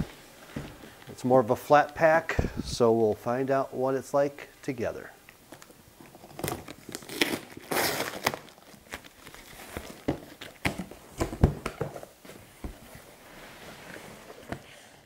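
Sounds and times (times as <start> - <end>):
packing rustling: 5.5 - 15.0
box cutter slitting tape: 6.4 - 8.4.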